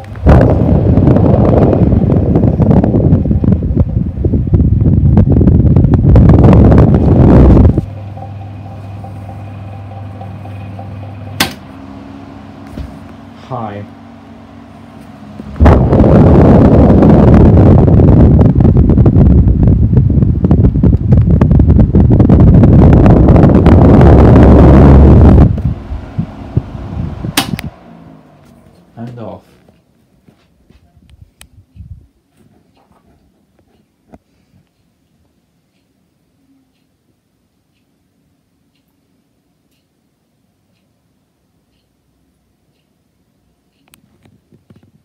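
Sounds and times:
fan airflow rushing on microphone: 0.0s - 34.7s
fan motor hum: 0.0s - 45.0s
fan button click: 11.3s - 11.8s, 25.4s - 29.3s
sharp click: 27.4s - 27.8s.

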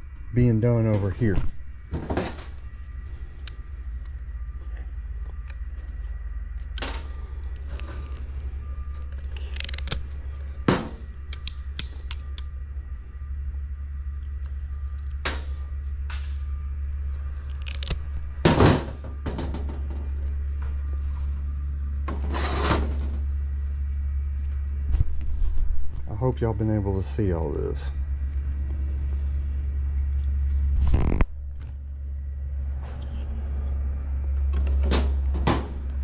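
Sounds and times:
steady low hum: 0.0s - 36.0s
wire strippers clicking and snipping: 11.2s - 12.5s, 14.3s - 18.2s.

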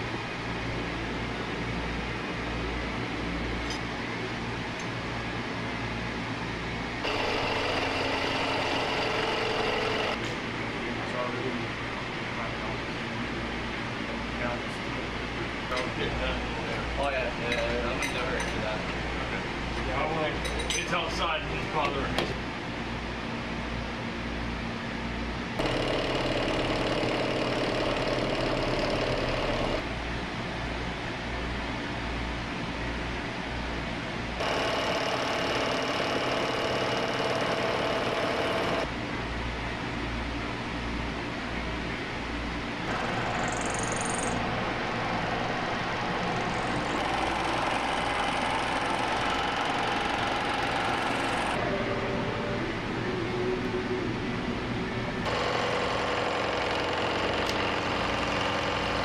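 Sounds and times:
machine hum: 0.0s - 59.0s
hole cutter whining through metal: 7.0s - 10.2s, 46.4s - 51.6s, 55.3s - 59.0s
milling machine motor humming: 7.0s - 10.7s, 25.6s - 30.0s, 34.4s - 38.9s, 42.8s - 59.0s
high whining tones: 42.9s - 59.0s.

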